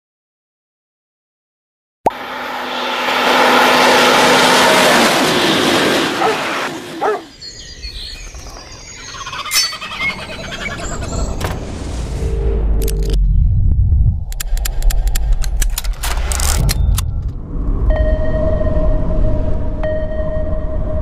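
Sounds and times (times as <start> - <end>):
loud steady rushing noise: 2.2 - 7.1.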